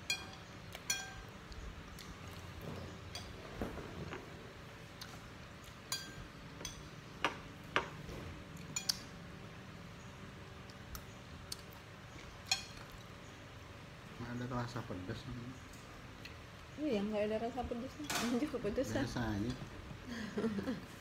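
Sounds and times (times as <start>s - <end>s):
spoon clinking on a plate: 0.0s - 1.3s, 5.9s - 7.9s, 8.7s - 9.1s.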